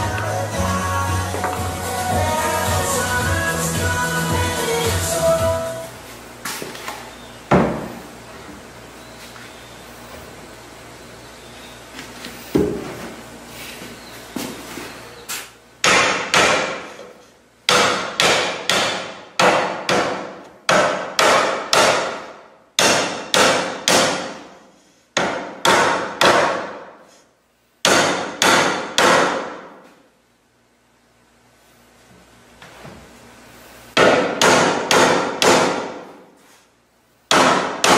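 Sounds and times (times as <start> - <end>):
blows knocking wood joint: 17.7 - 24.4, 27.8 - 29.6, 34.0 - 36.0, 37.3 - 37.9.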